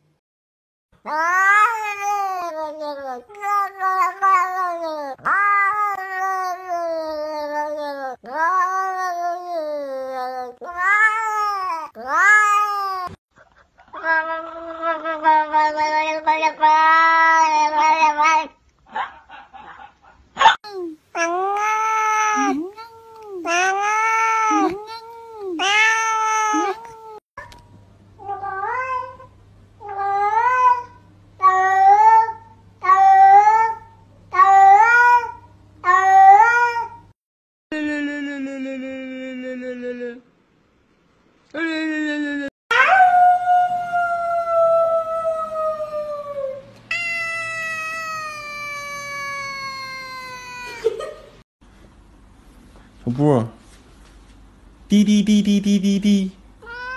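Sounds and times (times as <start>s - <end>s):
cat meowing: 1.1s - 13.2s, 21.2s - 27.2s, 46.9s - 50.8s, 56.6s - 56.9s.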